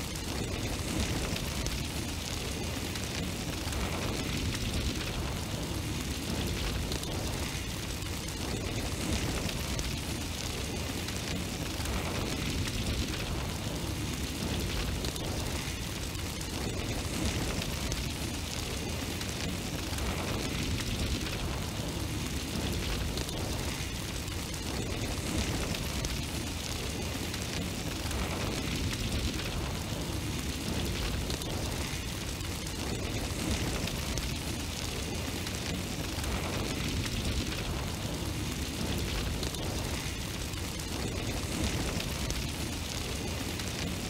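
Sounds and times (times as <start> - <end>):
flame roaring and crackling: 0.0 - 44.0.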